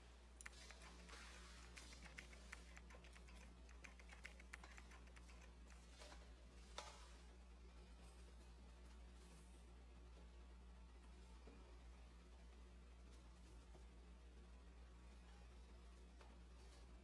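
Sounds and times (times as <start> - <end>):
faint clicks and ticks: 0.4 - 6.2.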